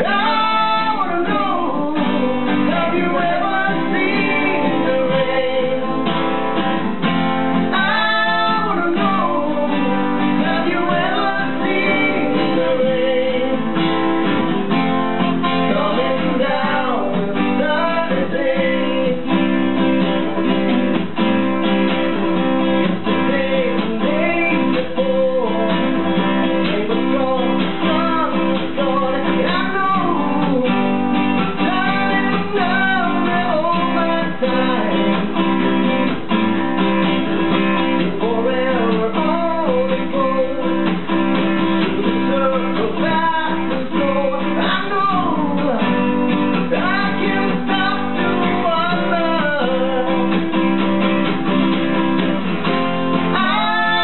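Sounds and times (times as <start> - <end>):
acoustic guitars playing: 0.0 - 54.0.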